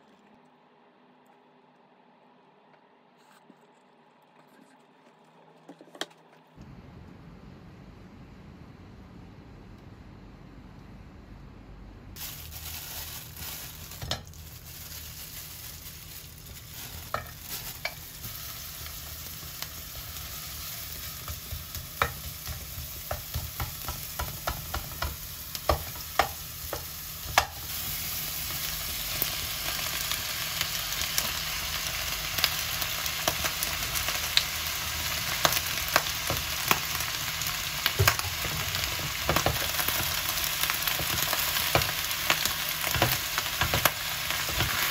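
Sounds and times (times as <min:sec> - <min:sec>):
garlic sizzling in oil: 0:12.2 - 0:44.9.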